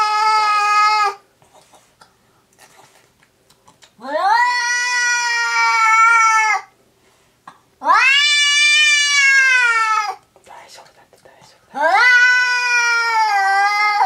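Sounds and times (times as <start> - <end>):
cat yowling: 0.0 - 1.2, 4.0 - 6.7, 7.8 - 10.2, 11.8 - 14.0.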